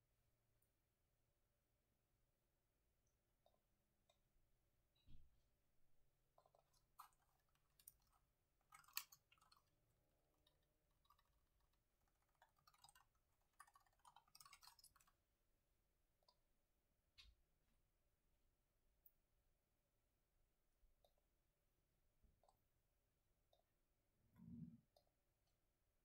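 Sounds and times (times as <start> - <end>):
laptop keyboard typing: 6.4 - 15.2.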